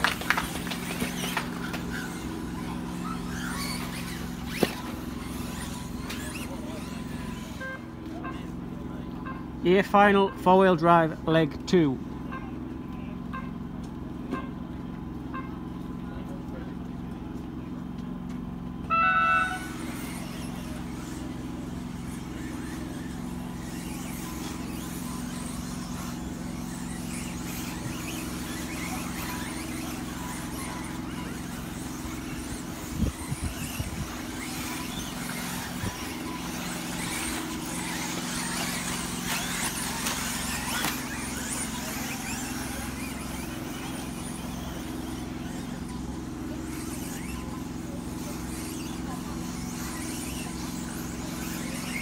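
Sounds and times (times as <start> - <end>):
cars knocking into obstacles: 0.0 - 7.6, 19.6 - 47.5
rc car motors whining: 0.0 - 52.0
electronic start tone: 18.8 - 20.0.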